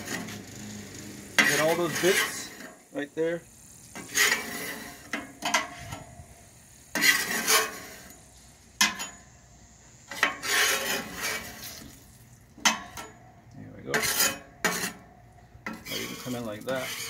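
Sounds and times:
metal scraper rasping on griddle: 0.0s - 2.8s, 3.9s - 6.1s, 6.9s - 8.2s, 8.8s - 9.2s, 10.1s - 11.9s, 13.8s - 17.0s.

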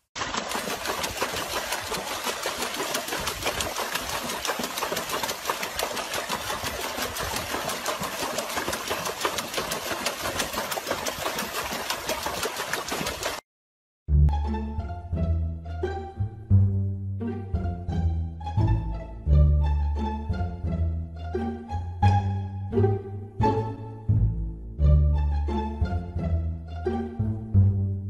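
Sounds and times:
dog paddling water in tub: 0.2s - 13.4s.

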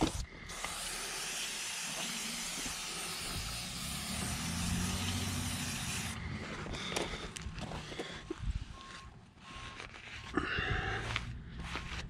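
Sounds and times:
aerosol spray can hissing: 0.0s - 6.2s.

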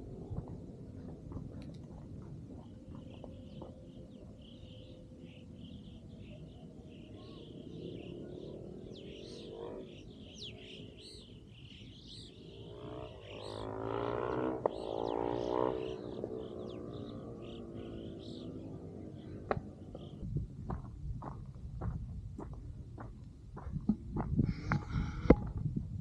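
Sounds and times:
passing engine drone: 0.0s - 20.6s
birds chirping and whistling: 2.6s - 20.3s.

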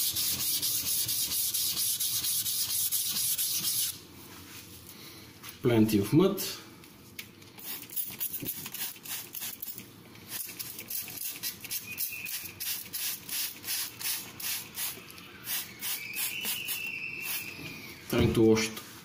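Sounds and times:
spray bottle squirts: 7.6s - 17.5s.

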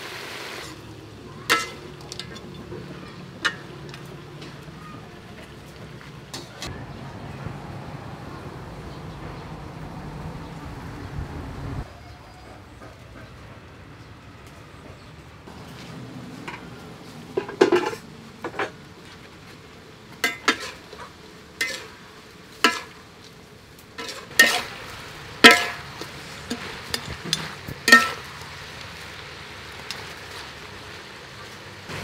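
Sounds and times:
low frying sizzle: 0.0s - 11.9s, 14.0s - 32.0s
metal ladle scraping a wok: 17.4s - 18.8s, 20.2s - 23.2s, 24.0s - 28.8s.

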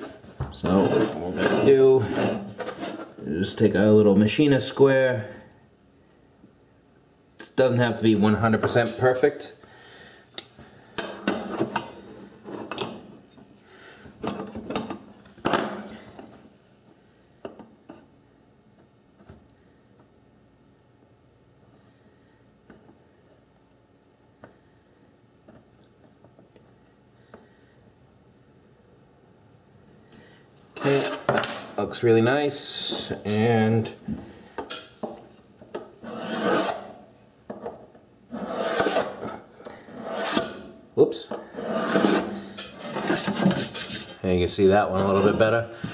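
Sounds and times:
tool scraping metal pan: 0.0s - 3.2s, 30.8s - 31.3s, 36.0s - 37.0s, 38.3s - 39.2s, 39.9s - 40.7s, 41.4s - 44.2s.

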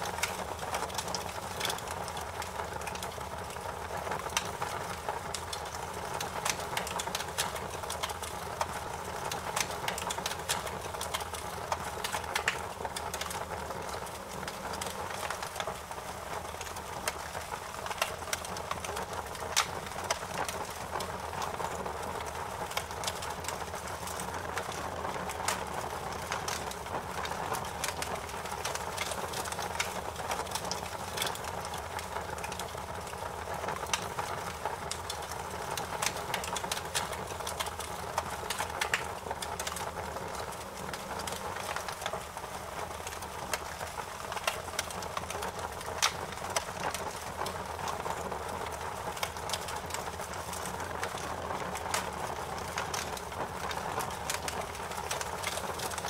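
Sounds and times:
wood fire crackling: 0.0s - 56.0s.

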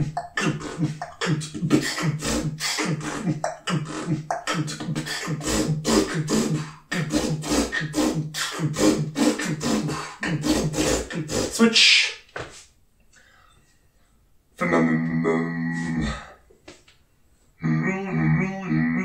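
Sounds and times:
beatboxing: 0.0s - 12.2s, 17.6s - 19.0s.

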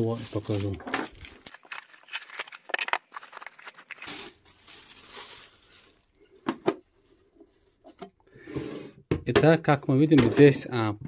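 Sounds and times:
plastic bag crinkling: 0.0s - 6.3s.

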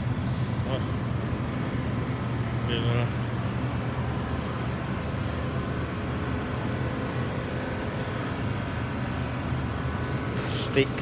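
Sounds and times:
supermarket hum and hiss: 0.0s - 11.0s.

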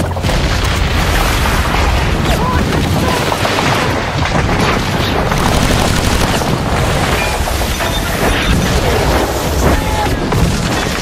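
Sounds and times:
booming explosions: 0.2s - 11.0s
rapid gunfire: 3.0s - 7.8s.

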